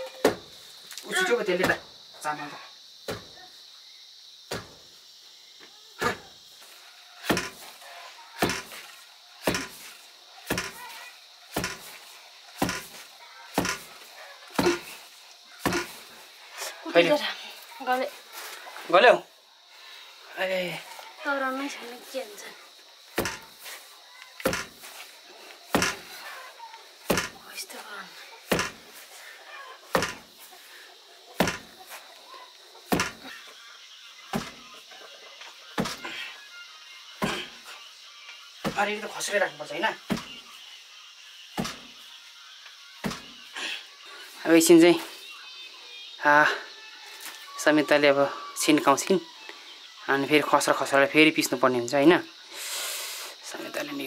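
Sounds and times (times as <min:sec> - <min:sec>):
wooden pestle pounding thuds: 0:04.5 - 0:04.8, 0:07.2 - 0:07.6, 0:08.4 - 0:08.8, 0:09.4 - 0:09.8, 0:10.5 - 0:10.8, 0:11.5 - 0:11.9, 0:12.6 - 0:13.0, 0:13.6 - 0:13.9, 0:14.6 - 0:14.9, 0:15.6 - 0:16.0, 0:23.2 - 0:23.5, 0:24.4 - 0:24.8, 0:25.7 - 0:26.0, 0:27.1 - 0:27.4, 0:28.5 - 0:28.8, 0:29.9 - 0:30.2, 0:31.4 - 0:31.7, 0:32.9 - 0:33.2, 0:34.3 - 0:34.6, 0:35.8 - 0:36.1, 0:37.2 - 0:37.5, 0:38.6 - 0:38.9, 0:40.1 - 0:40.3, 0:41.6 - 0:41.9, 0:43.0 - 0:43.3
wooden pestle pounding: 0:09.4 - 0:09.8, 0:12.6 - 0:13.0, 0:23.2 - 0:23.5, 0:25.7 - 0:26.0, 0:27.1 - 0:27.4, 0:28.5 - 0:28.8, 0:29.9 - 0:30.2, 0:31.4 - 0:31.7, 0:32.9 - 0:33.3, 0:34.3 - 0:34.6, 0:40.1 - 0:40.3, 0:41.6 - 0:41.8.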